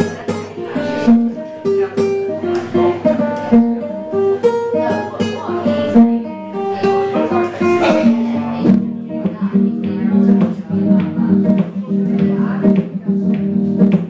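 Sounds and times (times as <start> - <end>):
classical guitar playing: 0.0 - 14.0.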